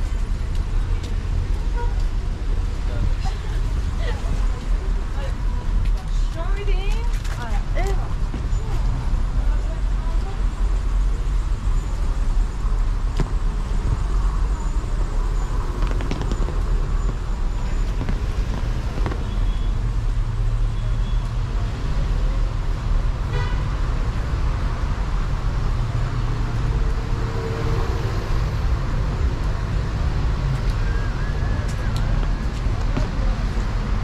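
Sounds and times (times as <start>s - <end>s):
cars going by: 0.0s - 34.0s
car horn toot: 23.3s - 23.6s.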